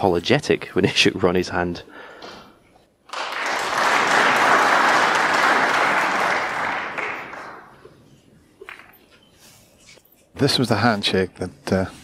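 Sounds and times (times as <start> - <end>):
audience applauding: 3.1 - 7.8.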